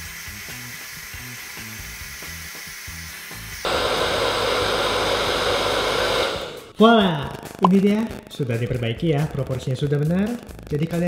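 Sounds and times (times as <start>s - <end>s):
hair dryer blowing: 0.0s - 6.8s
background music with low bass line: 6.8s - 11.0s.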